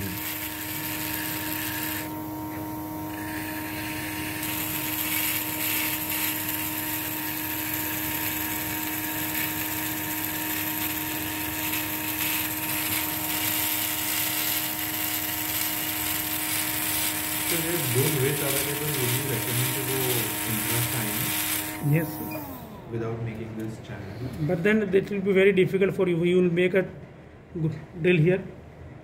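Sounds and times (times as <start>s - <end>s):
dental drill cutting bone: 0.0s - 22.8s.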